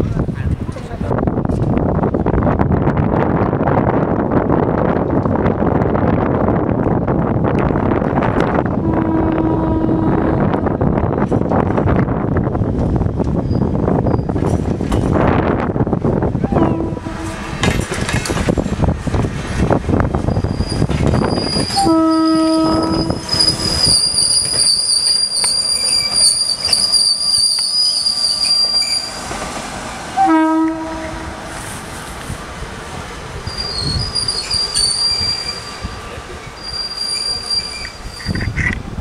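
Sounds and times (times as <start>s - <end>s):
train wheels rumbling on rails: 0.0s - 39.0s
train horn blasts: 8.8s - 10.7s, 16.5s - 17.6s, 21.7s - 23.4s, 30.2s - 31.4s
high wheel squeal: 20.3s - 29.2s, 33.4s - 38.8s.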